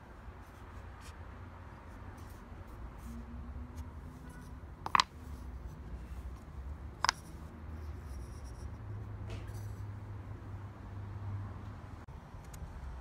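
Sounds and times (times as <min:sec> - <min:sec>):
wooden pieces knocking on board: 0:04.8 - 0:05.2, 0:07.0 - 0:07.4.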